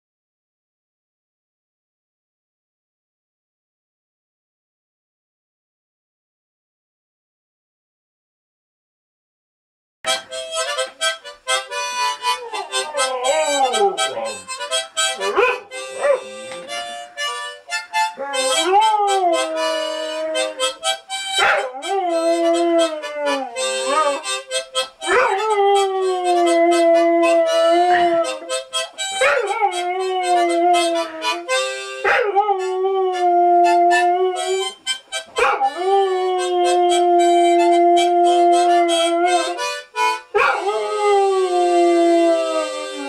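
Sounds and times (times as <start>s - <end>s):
harmonica chords: 10.1s - 43.0s
dog howling: 12.2s - 14.5s, 15.2s - 16.2s, 18.0s - 20.8s, 21.4s - 24.3s, 25.0s - 28.6s, 29.2s - 34.7s, 35.3s - 39.6s, 40.4s - 43.0s.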